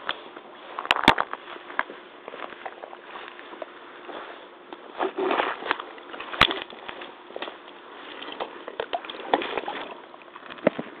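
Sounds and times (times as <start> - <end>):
waders sloshing in muddy water: 8.0 - 10.1.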